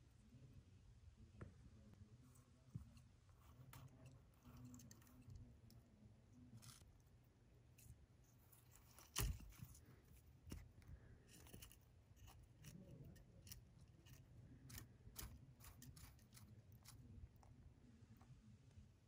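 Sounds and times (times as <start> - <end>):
lizard crunching an insect: 11.3 - 17.1.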